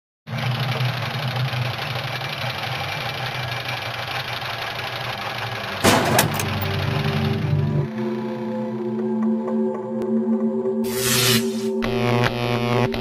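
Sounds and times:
machinery whirring drone: 0.4 - 9.3
short hits: 5.8 - 6.7
loud crash: 5.8 - 6.8.

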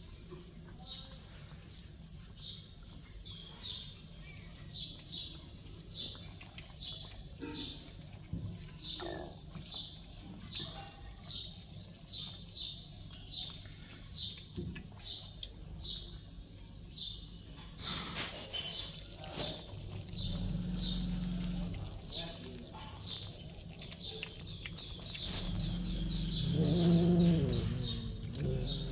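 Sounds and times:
small bird chirping: 0.0 - 28.9.

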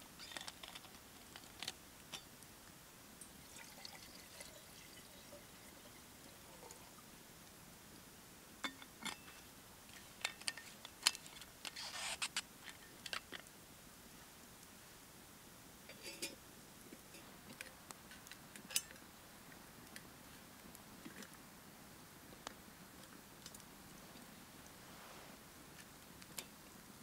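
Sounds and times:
drink poured into a cup: 3.4 - 6.9.

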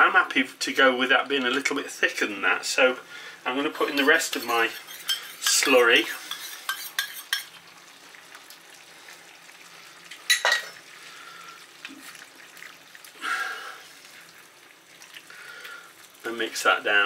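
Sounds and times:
faint sizzle in pan: 0.0 - 17.0
spatula stirring vegetables: 3.5 - 7.8
spoon scraping metal cup: 3.8 - 7.5.

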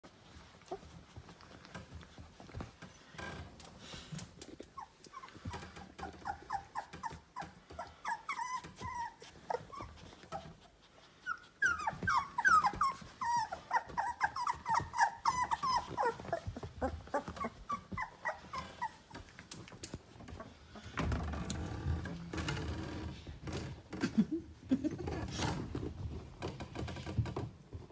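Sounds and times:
puppies squeaking and whimpering: 4.5 - 19.3.

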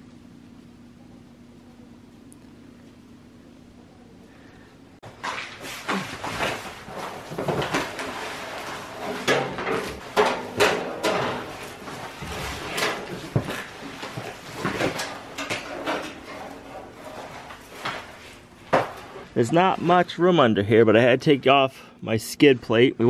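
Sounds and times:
cardboard crinkling and scraping: 5.2 - 20.0
tools clanking on metal: 7.3 - 18.1.

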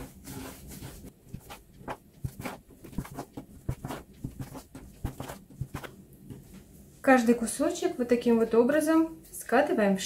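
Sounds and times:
dough scraper knocking on countertop: 1.4 - 5.9.

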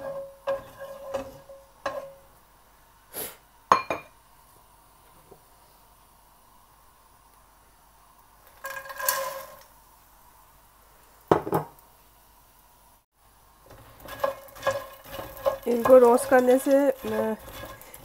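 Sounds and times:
spatula stirring seeds in pan: 0.0 - 2.3, 8.4 - 9.7, 13.6 - 18.0
seeds rattling into pan: 8.4 - 9.7, 13.7 - 18.0.

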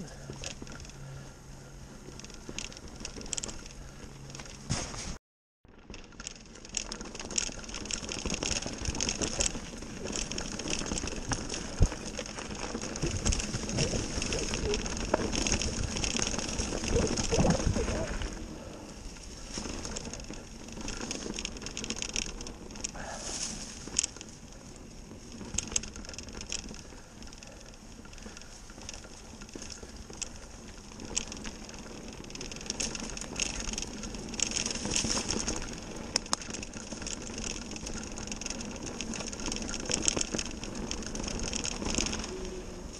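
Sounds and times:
bike rattling over bumps: 0.0 - 42.9
bike tyres rushing through dry leaves: 0.0 - 42.9
wind rumbling on microphone: 7.0 - 27.1.

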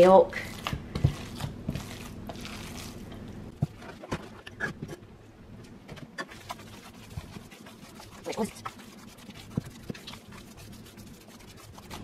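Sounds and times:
hands squelching meat mixture: 0.3 - 3.4, 6.3 - 12.0.

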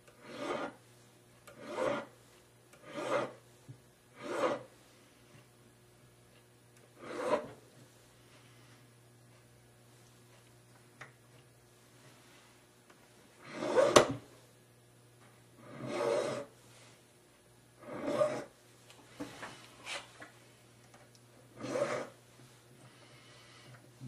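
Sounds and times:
file rasping on metal: 0.2 - 0.8, 1.5 - 2.1, 2.8 - 3.4, 4.1 - 4.7, 7.0 - 7.6, 13.5 - 14.1, 15.6 - 16.5, 17.8 - 18.5, 21.6 - 22.2.

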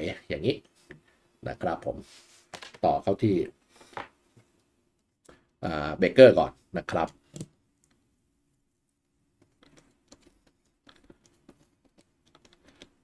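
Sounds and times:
small clicks and taps of wire: 9.4 - 13.0.

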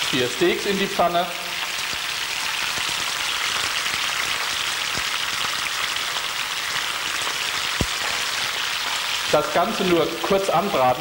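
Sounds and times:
steaks sizzling in pan: 0.0 - 11.0
small oil crackles: 1.5 - 10.0.

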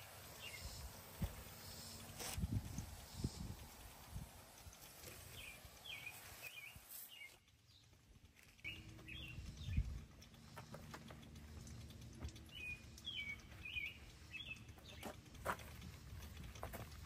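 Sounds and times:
bird chirping: 0.0 - 4.0, 4.9 - 8.0, 8.6 - 10.4, 12.3 - 15.4.

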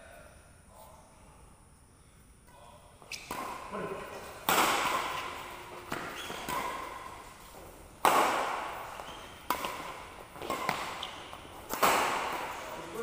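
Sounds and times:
racket hitting shuttlecock: 3.1 - 13.0.

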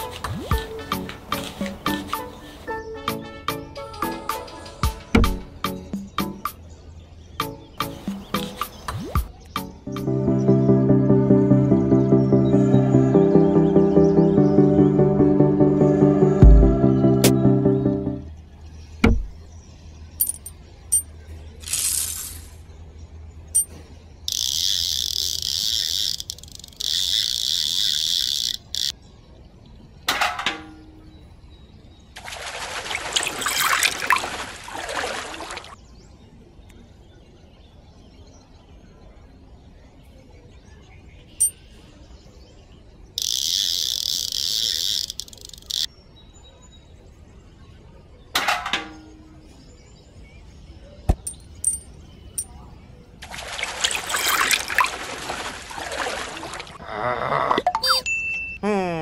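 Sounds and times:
water splashing into small pond: 32.2 - 35.8, 53.2 - 56.8.

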